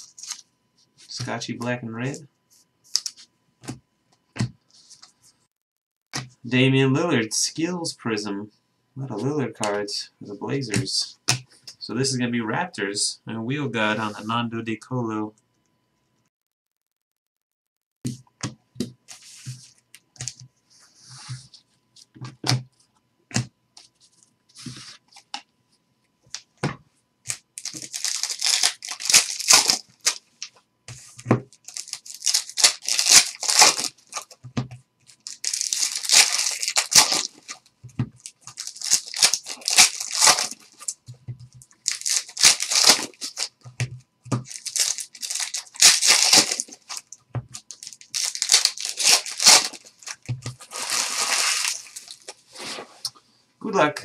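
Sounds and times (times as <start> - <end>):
foil wrappers crinkling and tearing: 0.0 - 0.4, 27.3 - 30.2, 31.5 - 34.4, 35.1 - 41.0, 41.8 - 43.6, 44.4 - 52.4
cards sliding through hands: 23.8 - 25.3.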